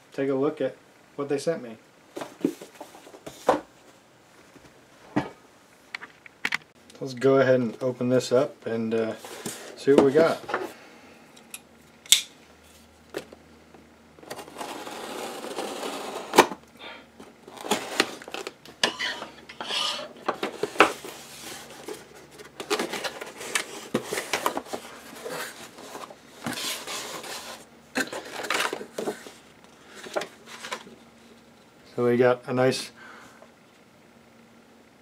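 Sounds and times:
cardboard rasping scrape: 0:14.2 - 0:16.5
cardboard and paper rustling: 0:14.2 - 0:16.6, 0:17.5 - 0:18.6, 0:20.2 - 0:31.3.

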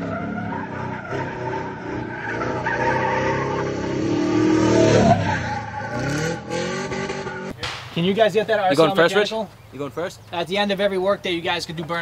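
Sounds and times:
car engine revving: 0:00.0 - 0:07.6
tyres squealing and skidding: 0:00.0 - 0:07.6.

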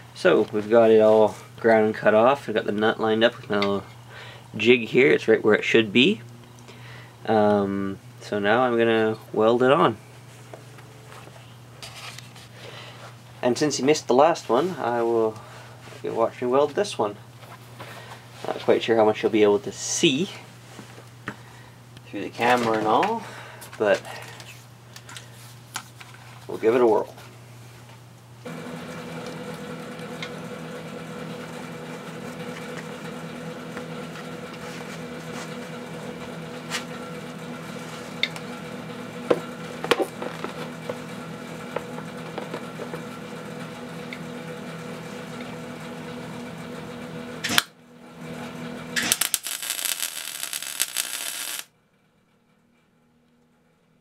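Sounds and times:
electrical hum: 0:00.0 - 0:54.0
welding arc crackling: 0:48.9 - 0:51.7.

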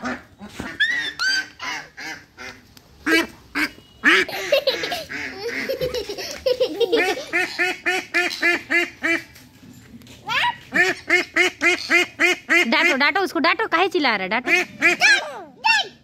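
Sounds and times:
duck quacking: 0:00.0 - 0:06.0, 0:07.0 - 0:09.3, 0:10.7 - 0:13.0, 0:14.4 - 0:15.3.

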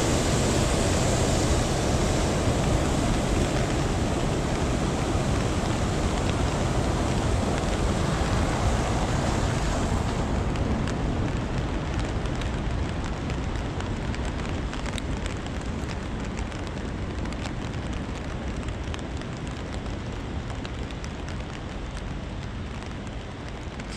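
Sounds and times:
stream water rushing: 0:00.0 - 0:15.7
raindrops ticking: 0:00.1 - 0:23.9.

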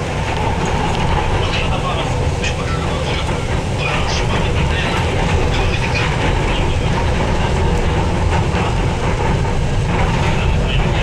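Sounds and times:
train rumbling on rails: 0:00.0 - 0:11.0.

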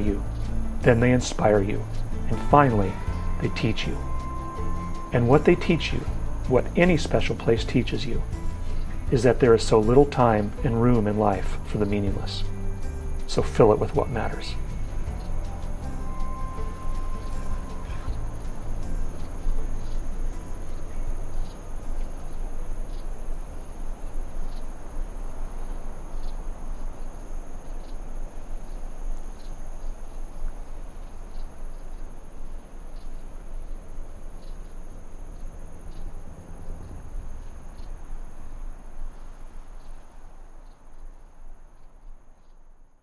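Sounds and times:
low rumble: 0:00.0 - 0:24.2
insects trilling: 0:00.0 - 0:43.0.

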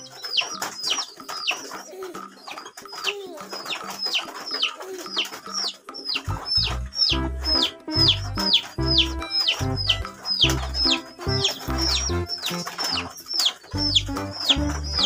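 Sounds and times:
ducklings and chicks peeping: 0:00.0 - 0:15.0
music with low bass: 0:06.3 - 0:12.3.

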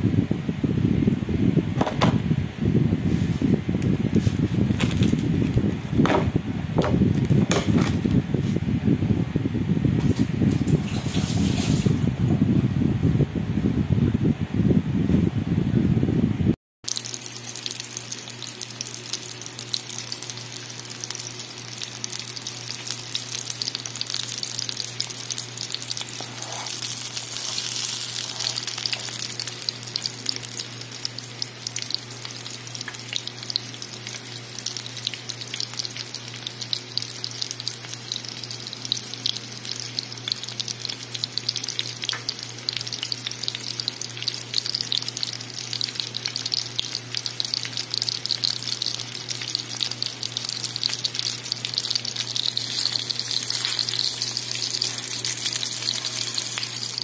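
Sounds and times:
steady low hum: 0:00.0 - 0:57.0
chicken frying in oil: 0:16.8 - 0:57.0.

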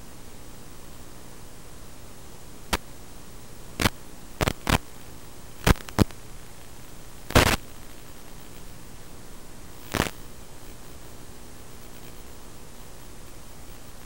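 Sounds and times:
static hiss: 0:00.0 - 0:14.0
sharp crackling pops: 0:02.7 - 0:02.9, 0:03.8 - 0:06.3, 0:07.2 - 0:08.7, 0:09.8 - 0:10.9.

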